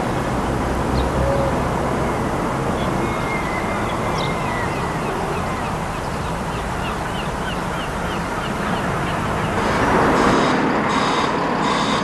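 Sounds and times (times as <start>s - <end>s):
outdoor background rumble: 0.0s - 12.0s
bird chirping: 0.4s - 9.6s.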